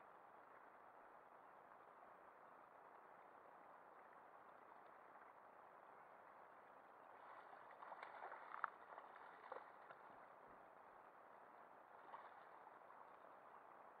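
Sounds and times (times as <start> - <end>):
water lapping against kayak: 2.9 - 14.0.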